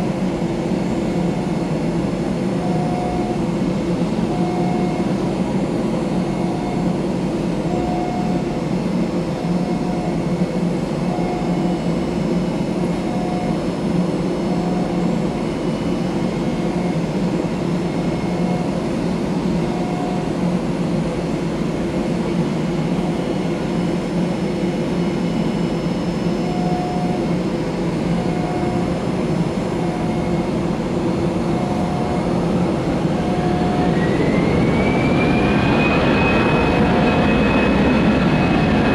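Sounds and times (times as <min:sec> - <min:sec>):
aircraft ground equipment drone: 0:00.0 - 0:38.9
faint short tone: 0:26.4 - 0:27.3, 0:28.2 - 0:28.9
turbine whine rising: 0:28.4 - 0:38.9.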